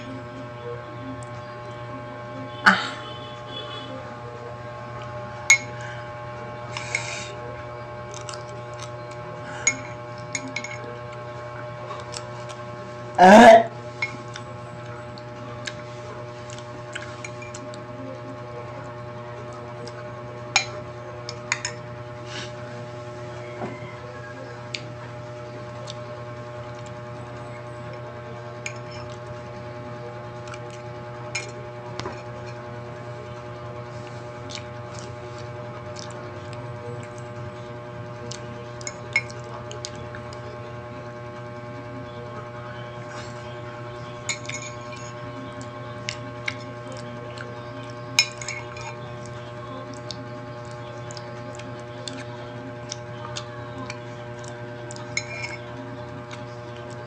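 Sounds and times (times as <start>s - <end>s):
steady hum: 0.0s - 57.0s
metal spoon scraping ceramic mug: 55.2s - 55.7s.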